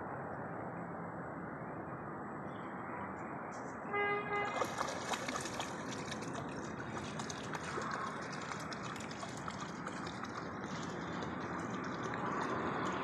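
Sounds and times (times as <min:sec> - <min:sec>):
dog wading through water: 0:04.3 - 0:13.0.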